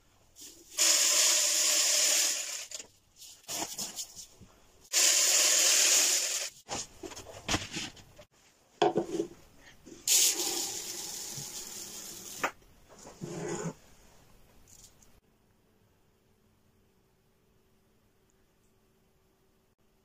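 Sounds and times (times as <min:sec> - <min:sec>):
rice grains pouring: 0:00.4 - 0:02.7, 0:04.9 - 0:06.6.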